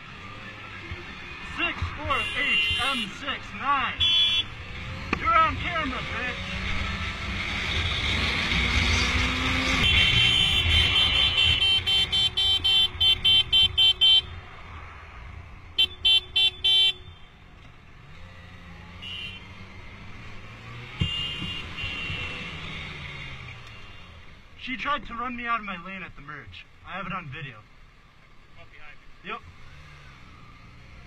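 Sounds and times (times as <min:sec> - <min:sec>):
vehicle horn tooting: 0:02.0 - 0:03.2, 0:04.0 - 0:04.5, 0:09.7 - 0:14.4, 0:15.8 - 0:17.3, 0:19.0 - 0:19.6, 0:21.0 - 0:22.6
motorcycle engine: 0:04.0 - 0:24.6.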